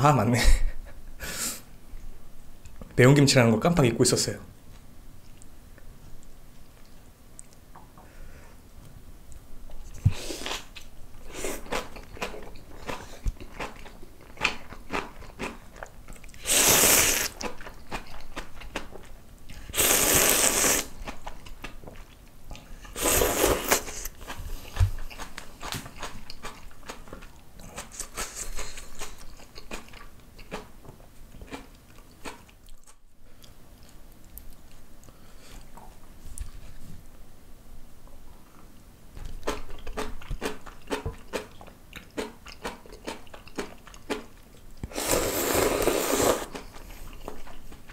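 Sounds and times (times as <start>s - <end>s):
man chewing and crunching: 9.7s - 36.0s, 39.2s - 47.9s
slurping noodles: 16.4s - 17.5s, 19.7s - 21.0s, 22.9s - 24.7s, 44.9s - 46.8s.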